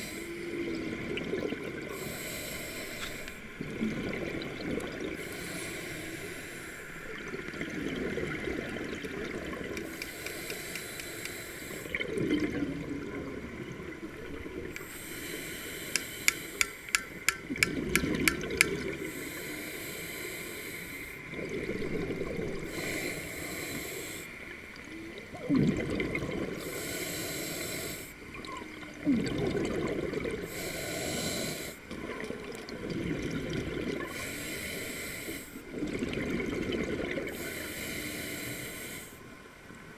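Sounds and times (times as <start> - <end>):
diver inhaling through regulator: 1.9 - 3.5, 5.2 - 7.0, 9.8 - 12.0, 14.8 - 17.0, 19.0 - 21.3, 22.6 - 24.4, 26.6 - 28.2, 30.4 - 31.8, 34.1 - 35.7, 37.3 - 39.2
bubbling exhale underwater: 11.9 - 13.4, 25.3 - 26.6, 28.3 - 30.6
sharp clicks: 15.9 - 18.8.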